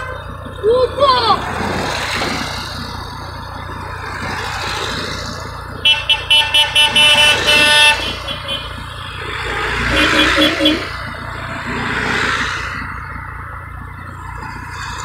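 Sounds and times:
cars driving past: 0:00.0 - 0:15.0
car horn tooting: 0:05.8 - 0:08.9, 0:09.8 - 0:11.0.

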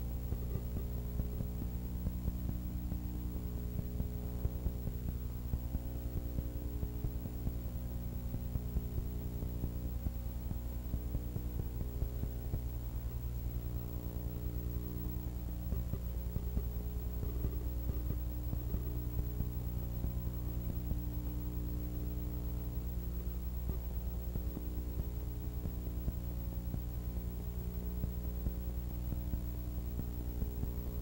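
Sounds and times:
electrical mains hum: 0:00.0 - 0:31.0
faint high-pitched whine: 0:00.0 - 0:31.0.

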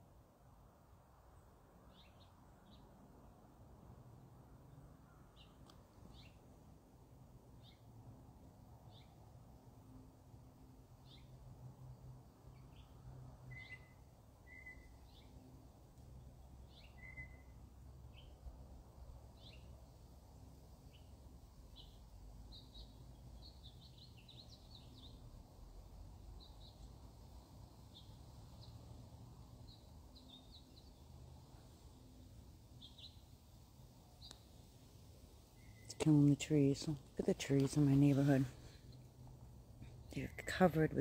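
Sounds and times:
low steady hum: 0:00.0 - 0:41.0
faint bird chirps: 0:12.5 - 0:15.5, 0:16.4 - 0:18.4, 0:32.8 - 0:33.3, 0:35.5 - 0:36.3.

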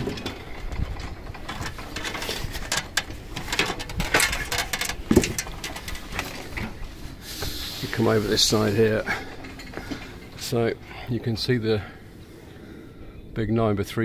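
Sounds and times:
clicks and knocks: 0:00.0 - 0:06.8.

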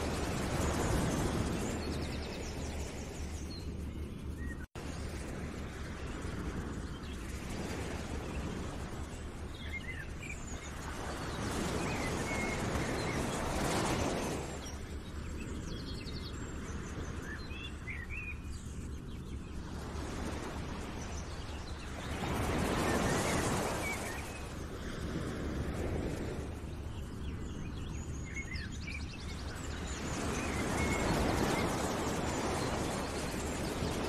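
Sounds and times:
small birds chirping: 0:00.0 - 0:25.2, 0:25.8 - 0:34.0
outdoor wash like surf or wind: 0:00.0 - 0:34.0.

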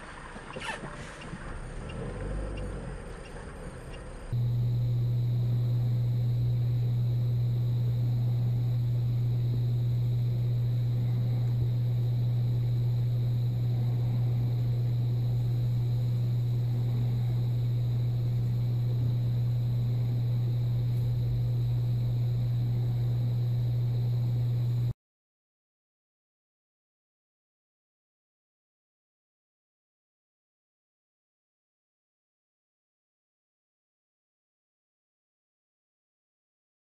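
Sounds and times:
faint road noise: 0:00.0 - 0:04.4
steady low hum in car: 0:00.0 - 0:25.0.

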